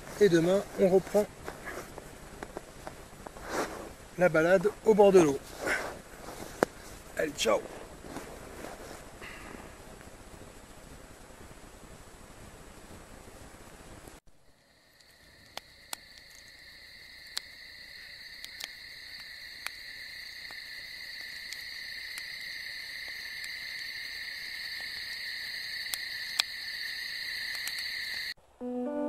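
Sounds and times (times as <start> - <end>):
campfire crackling: 0.0 - 28.4
high-pitched night chorus: 14.6 - 29.0.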